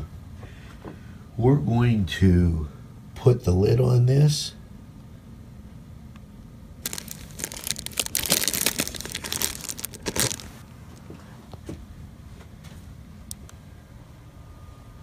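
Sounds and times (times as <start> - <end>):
cover crinkling over dish: 6.8 - 11.1.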